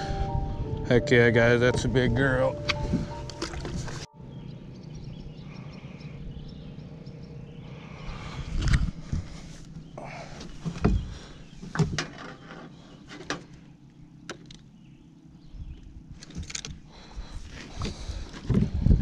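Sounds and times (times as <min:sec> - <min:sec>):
low rumble: 0:00.0 - 0:11.4
knocks and thumps in a boat: 0:10.4 - 0:12.4.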